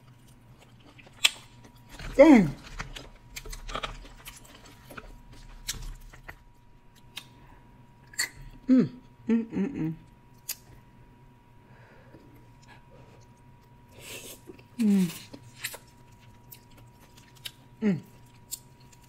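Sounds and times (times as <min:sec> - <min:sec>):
hummed vocal sounds: 0:08.6 - 0:10.1
chewing: 0:14.4 - 0:19.0.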